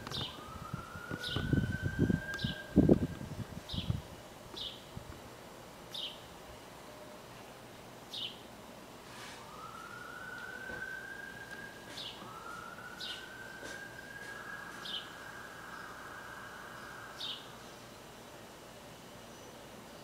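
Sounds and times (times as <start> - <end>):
faint siren: 0.0 - 3.9, 6.6 - 7.7, 9.1 - 19.2
bird chirping: 5.9 - 6.2, 8.1 - 8.4, 14.8 - 18.0.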